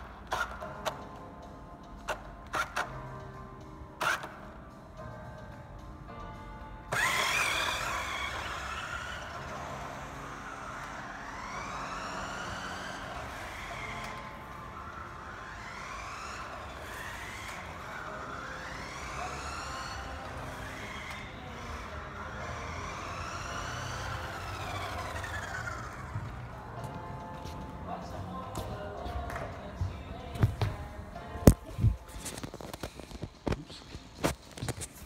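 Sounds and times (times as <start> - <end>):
siren wailing: 7.0 - 21.7, 22.3 - 26.4.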